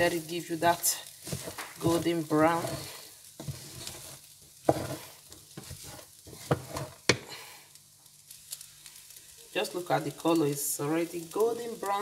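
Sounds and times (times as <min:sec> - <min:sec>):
wooden spatula scraping a pot: 0:00.0 - 0:07.4
rice sizzling in oil: 0:00.0 - 0:12.0.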